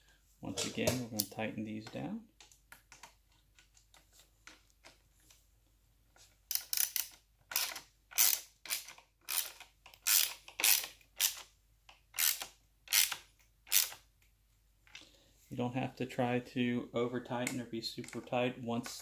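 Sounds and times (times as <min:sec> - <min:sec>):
ratchet pawl clicking: 0:06.5 - 0:11.4, 0:12.2 - 0:14.0.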